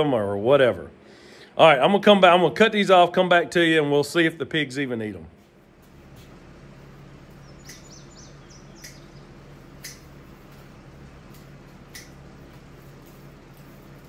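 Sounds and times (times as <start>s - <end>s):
steady low hum: 0.0s - 14.0s
shears snipping: 7.0s - 8.0s, 8.7s - 14.0s
high bird chirps: 7.3s - 10.1s.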